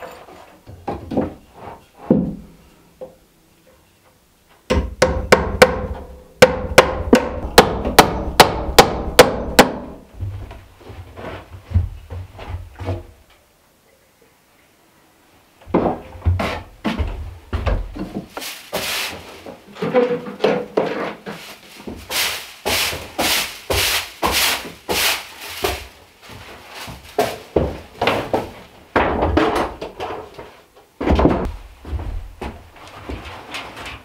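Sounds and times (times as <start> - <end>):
hand tool strokes on wood: 18.3 - 27.4.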